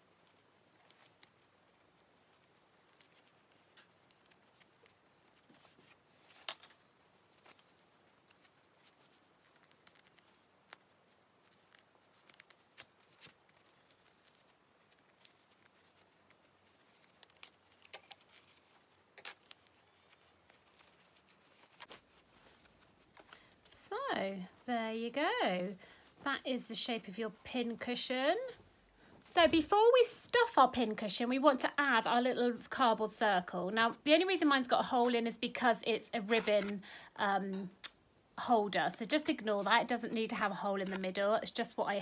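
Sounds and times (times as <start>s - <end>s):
canvas fabric rustling: 0.0s - 28.6s.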